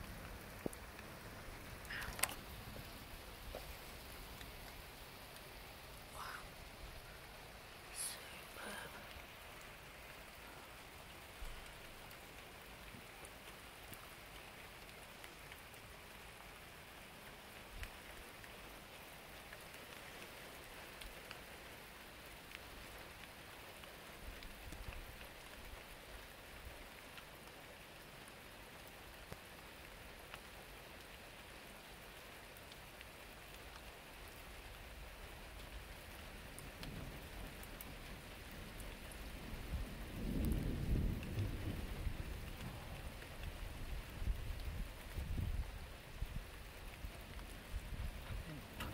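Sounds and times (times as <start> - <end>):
water drips ticking: 0.0 - 21.4
steady rain: 0.0 - 48.9
thunder rumble: 38.6 - 46.5.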